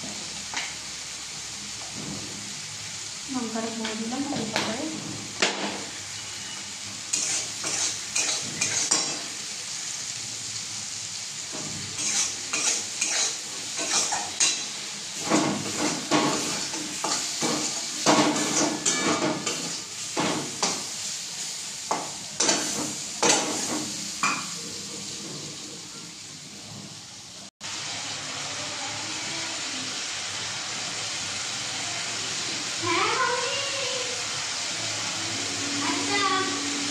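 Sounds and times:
food frying sizzle: 0.0 - 36.9
spatula scraping a steel wok: 6.2 - 9.3, 11.8 - 20.9.

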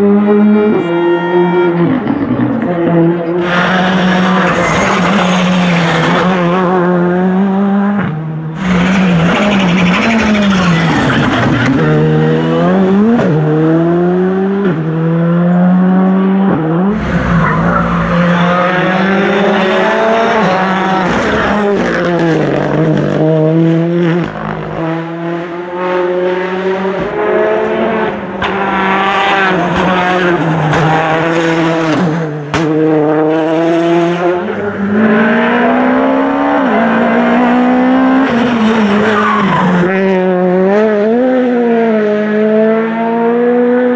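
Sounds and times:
rally car engines accelerating past: 0.0 - 43.9.

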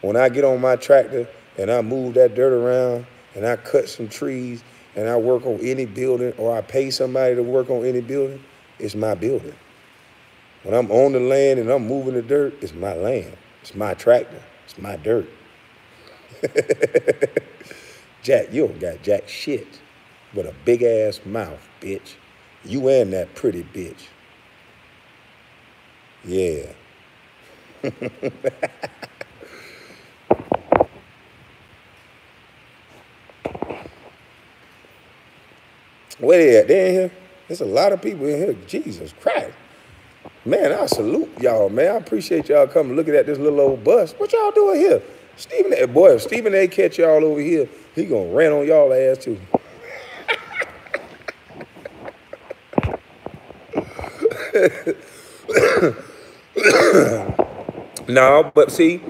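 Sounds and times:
man chuckling: 16.1 - 18.0, 27.6 - 30.0, 49.6 - 57.4
man laughing: 16.2 - 18.0, 27.6 - 29.9, 49.6 - 53.1, 53.7 - 57.4.

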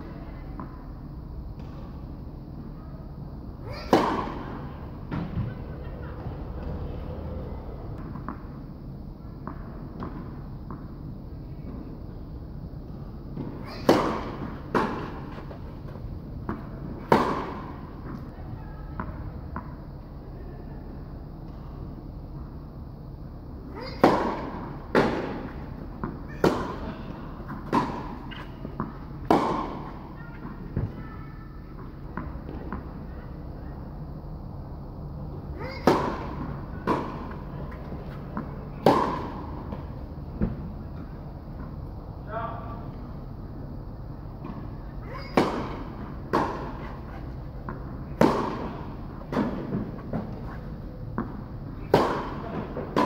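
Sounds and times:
tennis ball struck with rackets: 3.7 - 5.3, 13.4 - 15.6, 16.4 - 18.3, 23.8 - 31.0, 35.6 - 40.6, 44.4 - 50.5, 51.2 - 53.0.

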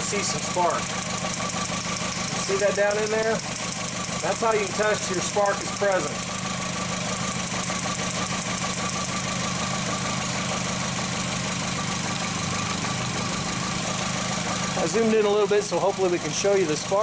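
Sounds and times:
car engine idling with misfire: 0.0 - 17.0.

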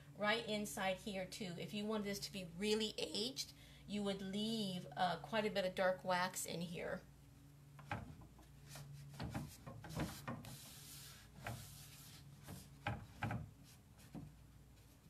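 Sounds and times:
cloth rag rubbing on wood: 8.6 - 12.9.

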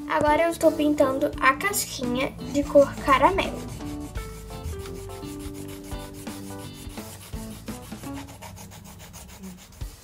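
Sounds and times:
pencil shading on paper: 2.5 - 10.0.

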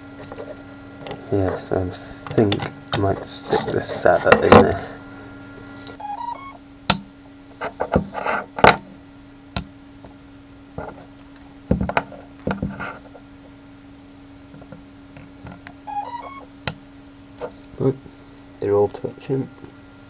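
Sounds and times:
faint steady hum: 0.0 - 20.0
quick electronic beeps: 6.0 - 6.6, 15.9 - 16.5.

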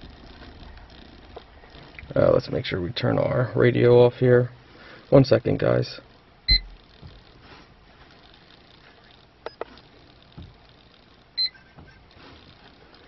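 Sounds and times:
high electronic beep: 6.5 - 6.7, 11.4 - 11.6.

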